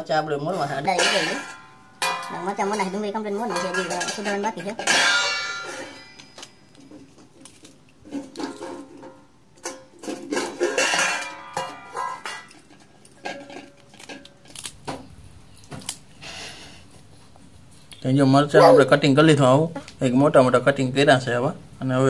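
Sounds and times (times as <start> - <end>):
person speaking: 18.0 - 19.9.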